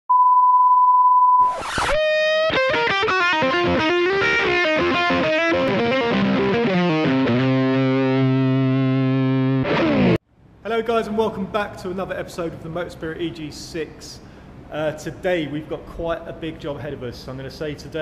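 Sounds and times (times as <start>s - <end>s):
distorted electric guitar riff: 1.4s - 10.2s.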